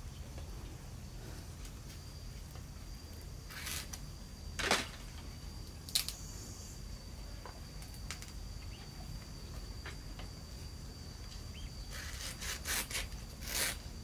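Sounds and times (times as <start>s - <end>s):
high insect drone: 0.0s - 14.0s
bamboo scraping: 3.4s - 5.1s, 11.8s - 14.0s
bamboo click: 5.8s - 6.2s.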